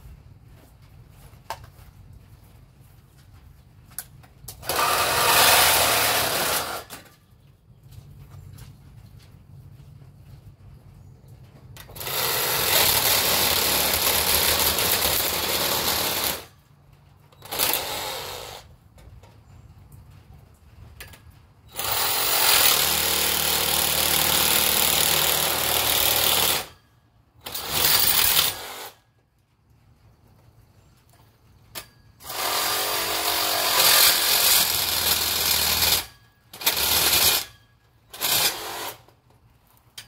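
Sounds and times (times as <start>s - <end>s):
reciprocating saw cutting metal: 4.6s - 7.0s, 32.2s - 39.1s.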